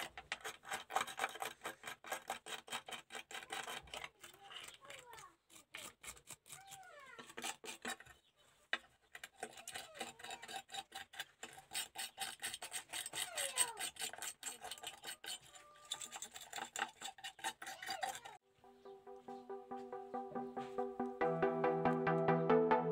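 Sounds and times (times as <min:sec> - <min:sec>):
wire brush scrubbing: 0:00.0 - 0:08.1, 0:09.1 - 0:18.4
music: 0:18.4 - 0:22.9.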